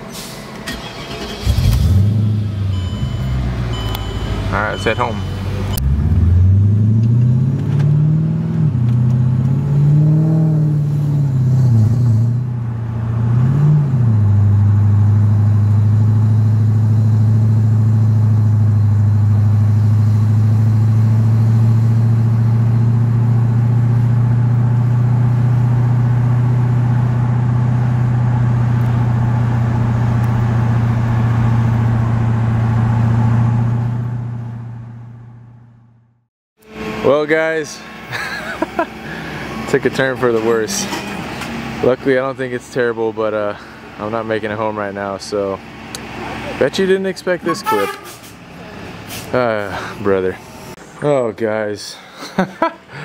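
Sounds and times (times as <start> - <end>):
car engine revving and droning: 0.6 - 35.7, 36.6 - 42.6.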